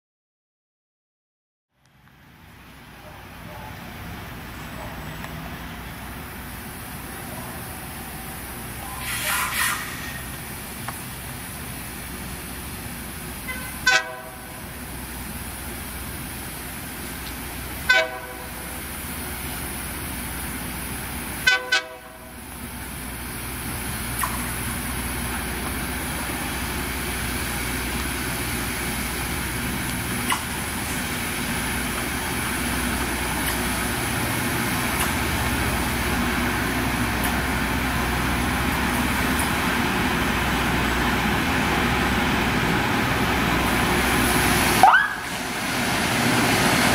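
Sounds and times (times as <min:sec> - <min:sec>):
rail grinder grinding rail: 0:03.5 - 0:46.9
short horn toots: 0:08.9 - 0:10.2.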